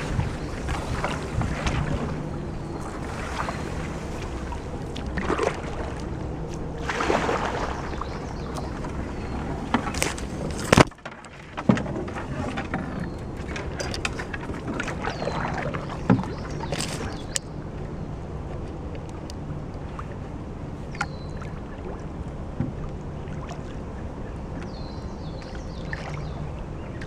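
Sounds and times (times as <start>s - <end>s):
paddle swishing through water: 0.0s - 17.4s.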